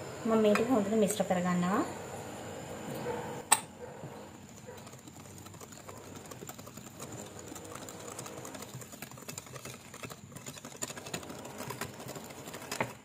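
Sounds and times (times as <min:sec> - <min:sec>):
wire whisk beating batter in bowl: 0:03.8 - 0:13.0.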